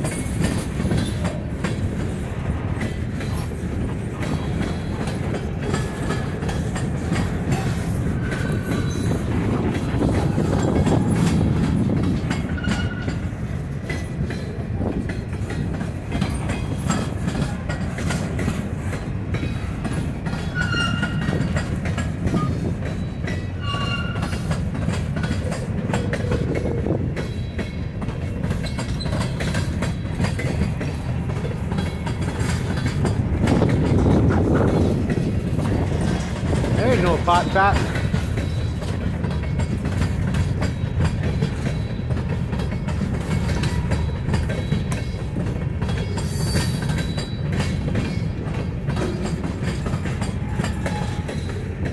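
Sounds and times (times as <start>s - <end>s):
continuous train rumble: 0.0s - 51.9s
train wheels click-clacking: 0.0s - 51.9s
high-pitched wheel squeals: 20.5s - 21.3s, 22.4s - 24.5s.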